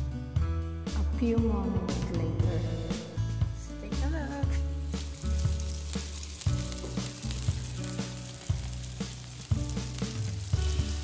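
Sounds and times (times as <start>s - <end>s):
background music with bass: 0.0s - 11.0s
food sizzling on grill: 3.8s - 11.0s.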